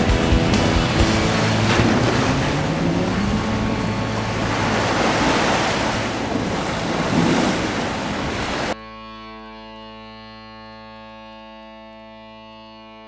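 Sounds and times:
low hum rising in pitch: 0:00.0 - 0:13.0
small waves washing up a beach: 0:01.0 - 0:08.8.

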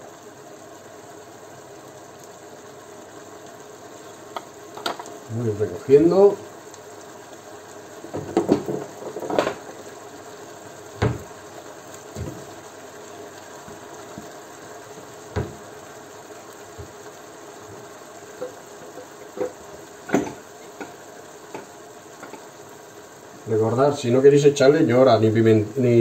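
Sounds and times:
sauce simmering in pan: 0:00.0 - 0:26.0
kitchenware clinking and knocking: 0:20.1 - 0:20.4.

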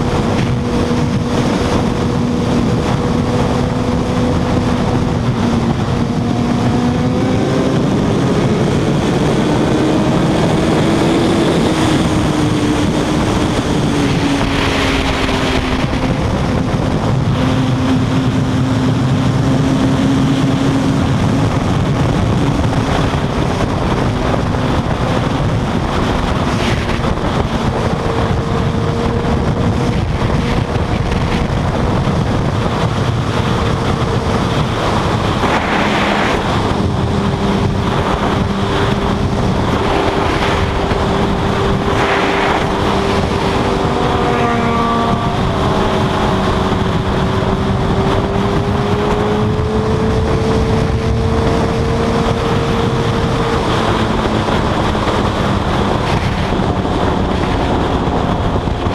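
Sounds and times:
motorcycle engine drone: 0:00.0 - 0:58.9
wind rushing over microphone: 0:00.0 - 0:58.9.

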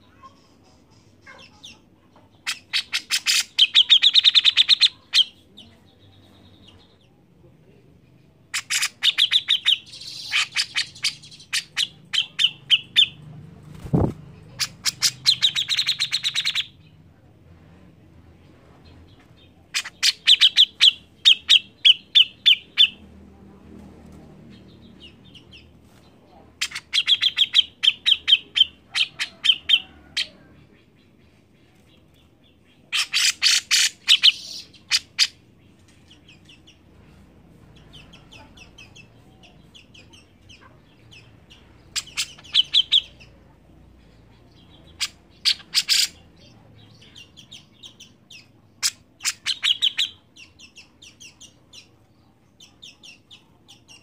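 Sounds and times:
bird chattering: 0:00.1 - 0:07.0, 0:08.5 - 0:13.2, 0:14.0 - 0:16.8, 0:19.7 - 0:23.0, 0:26.6 - 0:31.2, 0:32.8 - 0:36.8, 0:37.7 - 0:43.4, 0:44.0 - 0:52.0.

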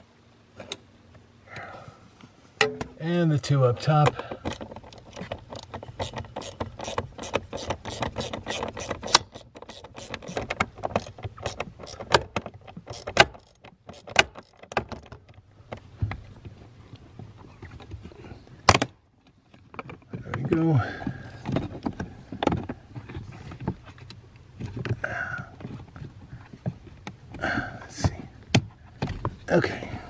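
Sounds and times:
ratchet clicking: 0:04.5 - 0:12.3, 0:12.9 - 0:14.8.

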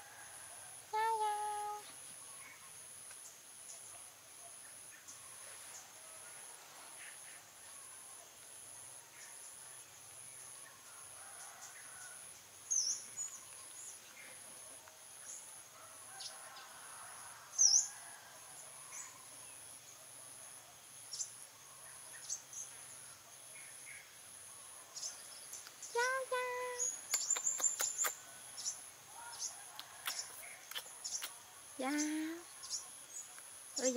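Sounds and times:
insect trill: 0:15.2 - 0:33.9
bird chirps: 0:25.0 - 0:33.9.

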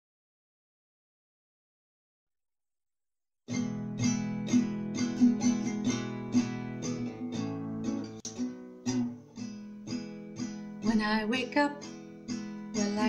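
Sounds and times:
acoustic guitar strumming: 0:03.5 - 0:13.0.

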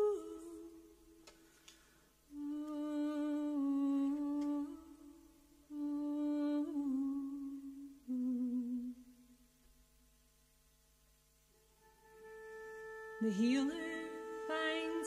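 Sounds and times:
woman humming: 0:02.3 - 0:09.1, 0:12.1 - 0:15.0.

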